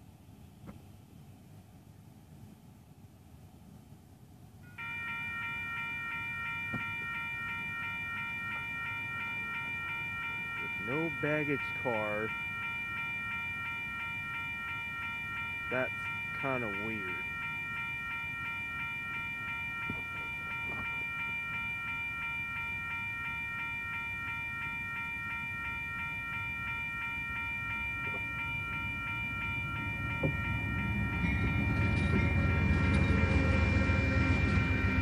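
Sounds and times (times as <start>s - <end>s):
steady high ringing tone: 4.6s - 35.0s
diesel train rumbling past: 27.6s - 35.0s.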